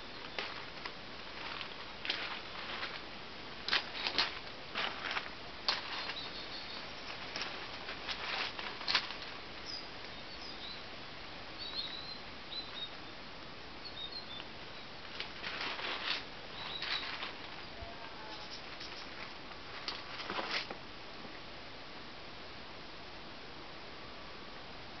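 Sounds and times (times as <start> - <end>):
small birds chirping: 0.0 - 0.7, 5.8 - 10.9, 11.5 - 15.1, 16.5 - 19.3
rustling: 0.0 - 13.5, 14.3 - 21.4
steady hiss: 0.0 - 25.0.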